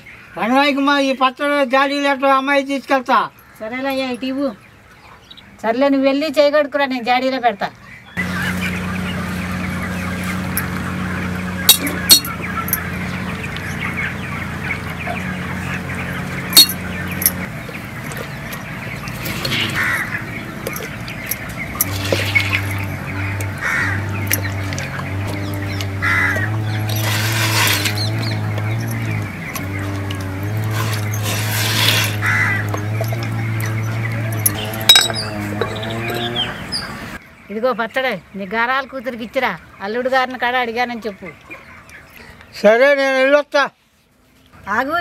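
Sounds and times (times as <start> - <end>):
chickens and birds calling: 0.0 - 45.0
low steady drone: 8.2 - 37.2.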